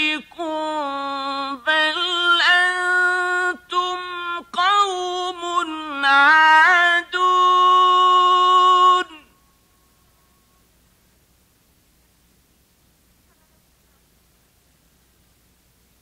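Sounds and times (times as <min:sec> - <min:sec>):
man chanting melodically: 0:00.0 - 0:09.4.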